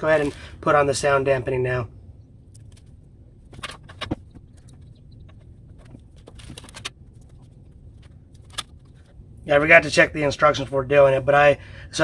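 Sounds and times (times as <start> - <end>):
small clicks and rustles: 2.5 - 9.2.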